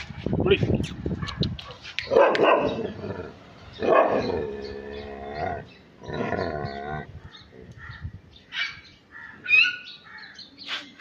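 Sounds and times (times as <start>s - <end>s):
dog barking: 1.2s - 2.8s, 3.8s - 4.3s.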